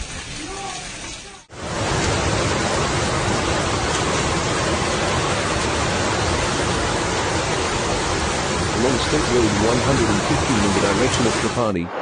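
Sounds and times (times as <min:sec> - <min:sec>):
heavy rain: 0:00.0 - 0:11.7
floodwater rushing: 0:00.3 - 0:11.7.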